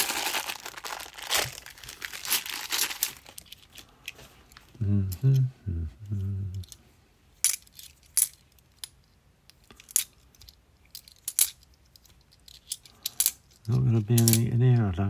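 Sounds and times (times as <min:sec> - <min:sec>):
man's wordless vocal sound: 0:04.8 - 0:06.6.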